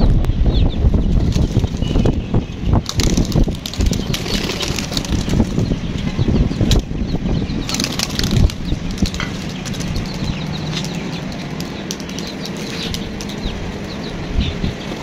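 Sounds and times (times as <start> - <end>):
pigeons flapping wings: 1.1 - 2.2, 2.8 - 5.7, 7.6 - 13.5.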